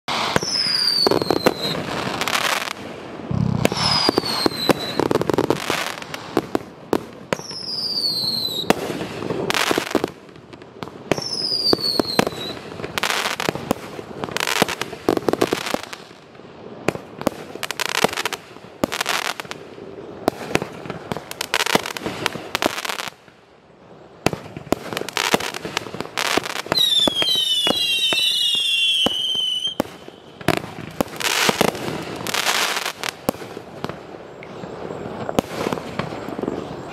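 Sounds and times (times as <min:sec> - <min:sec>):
falling firework whistle: 0:00.1 - 0:06.6, 0:07.3 - 0:10.0, 0:11.1 - 0:13.6, 0:25.0 - 0:36.9
firework bursts and crackle: 0:00.1 - 0:36.9.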